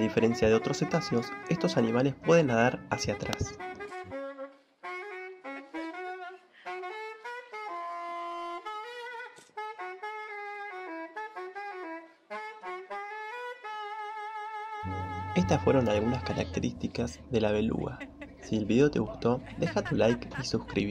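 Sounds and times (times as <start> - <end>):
clarinet slow solo melody: 0.0 - 9.9, 13.5 - 18.6.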